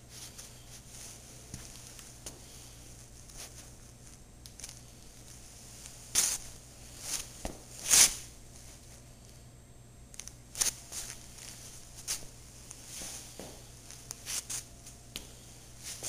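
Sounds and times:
low room hiss: 0:00.0 - 0:16.0
rubber soles scuffing on concrete: 0:06.1 - 0:08.2, 0:10.6 - 0:16.0.

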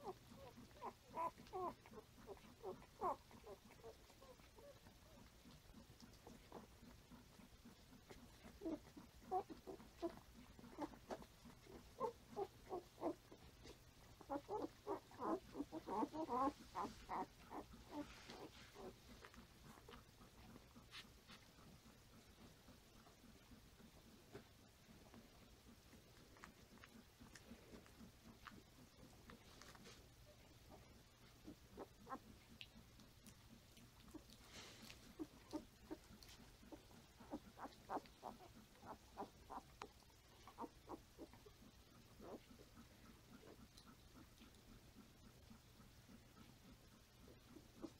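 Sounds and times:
puppies squeaking: 0:00.0 - 0:05.6, 0:06.2 - 0:22.5, 0:31.3 - 0:32.8, 0:33.5 - 0:44.5.

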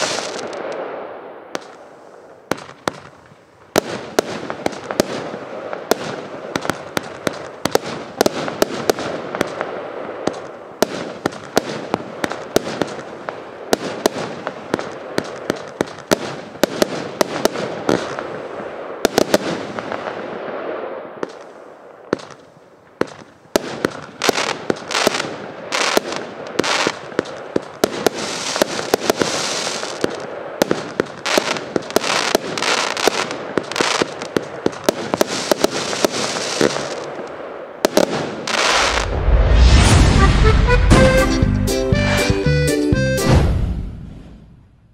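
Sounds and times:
firework launch and burst bangs: 0:00.0 - 0:01.8, 0:22.1 - 0:41.4, 0:43.2 - 0:44.6
firework crackle: 0:00.0 - 0:41.2.

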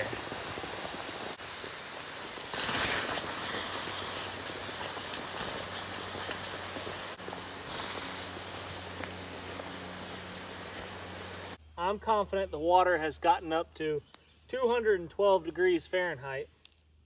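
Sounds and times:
rock dripping water: 0:00.0 - 0:07.5
water boiling around hot rocks: 0:00.0 - 0:11.6
water splashing: 0:00.0 - 0:11.6.

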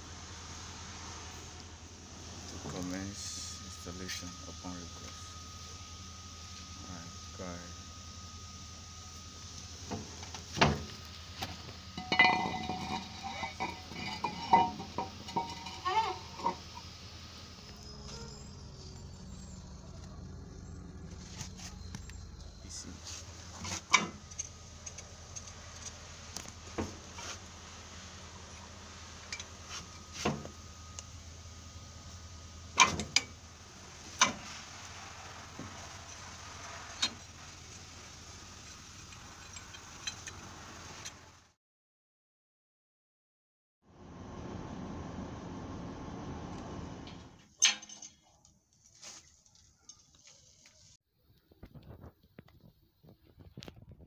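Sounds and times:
low steady hum: 0:00.0 - 0:40.3
tool clinking in engine bore: 0:10.1 - 0:18.4, 0:29.2 - 0:30.6, 0:47.6 - 0:48.4
ringing metallic clinks: 0:12.0 - 0:16.9.

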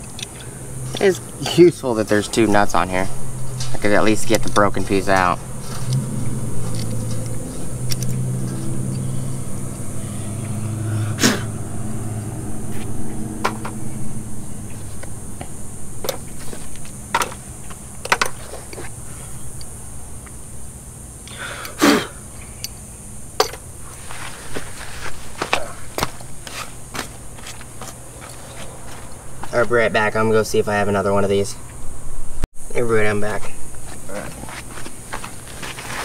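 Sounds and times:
low steady hum: 0:00.0 - 0:36.0
metal hand tools clinking: 0:22.6 - 0:23.6.

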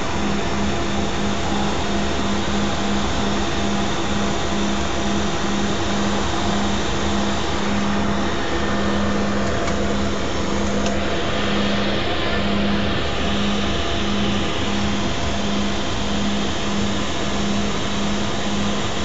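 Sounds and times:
propeller engine drone in cabin: 0:00.0 - 0:19.0.

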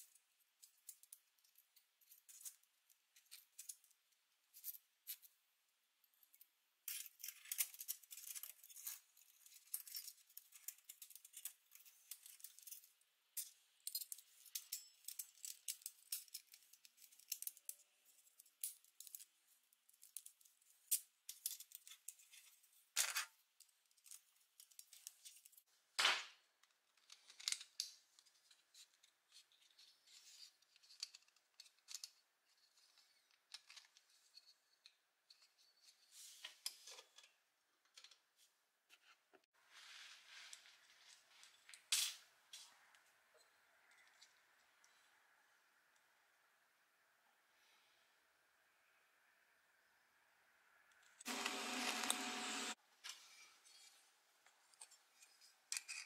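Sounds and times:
small metal parts clicking: 0:00.1 - 0:05.4, 0:06.1 - 0:25.6, 0:26.9 - 0:29.9, 0:30.6 - 0:35.7, 0:54.7 - 0:56.0.

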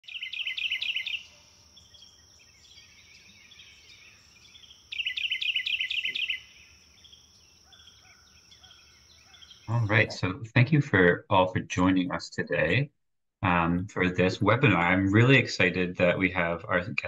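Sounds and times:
songbird chirping: 0:00.0 - 0:10.4.

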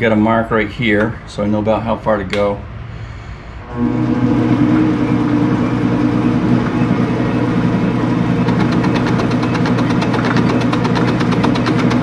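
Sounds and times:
metal lathe motor humming: 0:03.7 - 0:12.0.

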